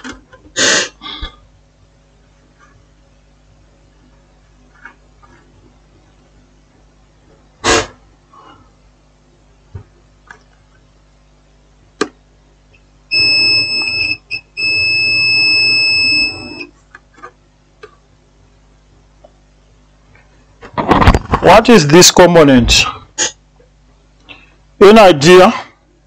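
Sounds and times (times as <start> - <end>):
multimeter continuity beep: 13.1 - 16.7.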